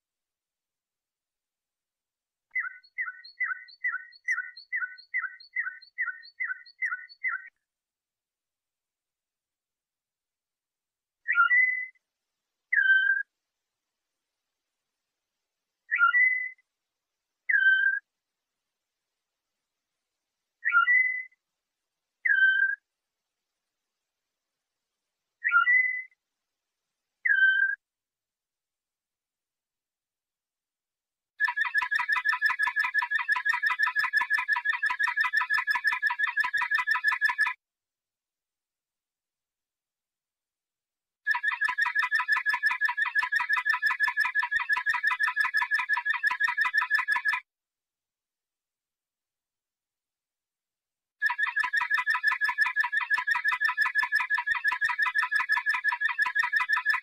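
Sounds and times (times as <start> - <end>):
canary song phrase: 2.5 - 7.6, 11.2 - 12.0, 12.7 - 13.3, 15.9 - 16.6, 17.5 - 18.1, 20.6 - 21.4, 22.2 - 22.8, 25.4 - 26.2, 27.2 - 27.8.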